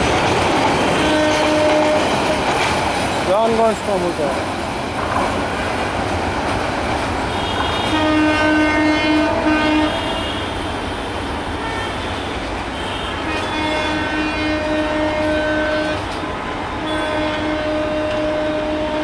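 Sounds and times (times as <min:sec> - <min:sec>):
train rumbling: 0:00.0 - 0:19.0
train horn short blasts: 0:01.0 - 0:02.1, 0:07.3 - 0:10.7, 0:11.6 - 0:16.0, 0:16.8 - 0:19.0.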